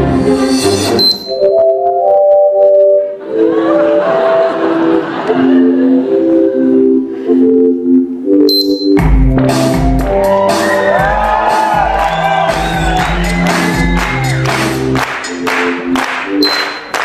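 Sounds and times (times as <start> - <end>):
dance music melodic line: 0.3 - 17.0
heavy beat with deep bass drum: 9.0 - 14.9
audience whooping and shouting: 10.0 - 14.8.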